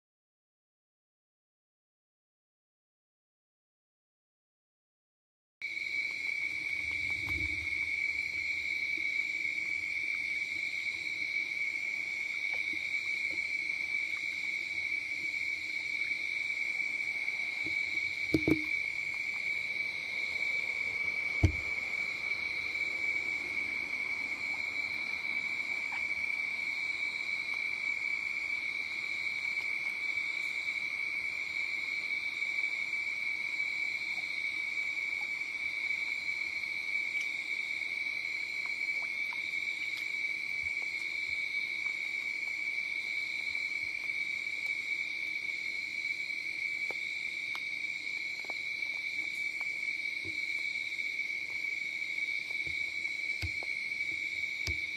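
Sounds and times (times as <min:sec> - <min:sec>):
night insects trilling: 0:05.6 - 0:54.9
short knock: 0:18.3 - 0:18.7, 0:21.4 - 0:21.7
faint ticks: 0:37.2 - 0:37.4.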